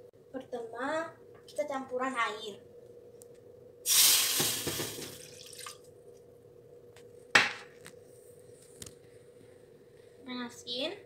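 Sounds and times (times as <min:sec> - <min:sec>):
water pouring into metal saucepan: 0:03.9 - 0:05.8.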